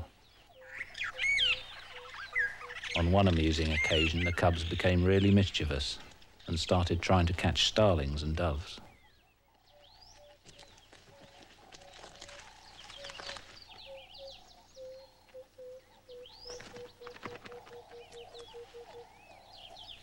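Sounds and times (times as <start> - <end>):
high rising bird chirps: 0.5 - 3.0
dove cooing: 10.2 - 20.0.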